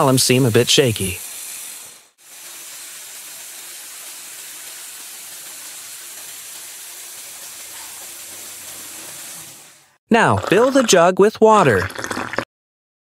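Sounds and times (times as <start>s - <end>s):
toy electric motor whirring: 0.4s - 9.9s.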